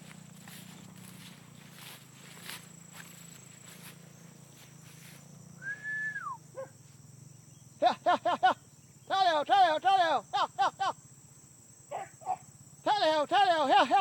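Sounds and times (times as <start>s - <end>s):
dogs yelping barks: 6.5s - 6.8s, 11.9s - 12.5s.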